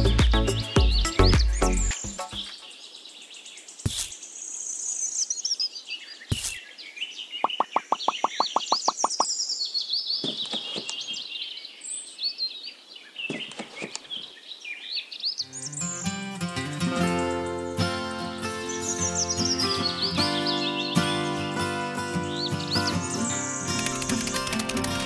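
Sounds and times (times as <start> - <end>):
birds chirping and singing: 0.0 - 25.0
quick run of even clicks: 23.7 - 25.0.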